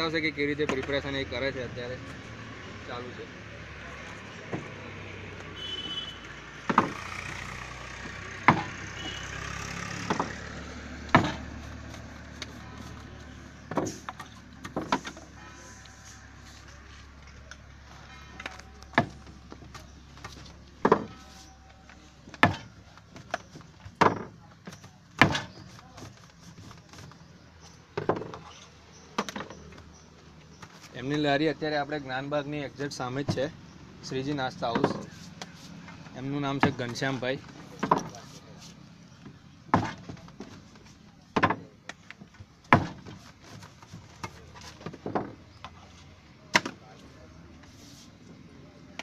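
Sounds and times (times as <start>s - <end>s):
sharp knocks: 6.6s - 7.1s, 8.4s - 8.8s, 11.1s - 11.5s.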